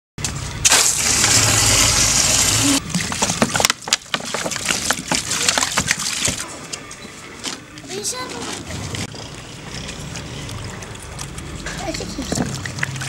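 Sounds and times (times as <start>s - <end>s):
water splashing onto clothes: 0.6s - 6.6s.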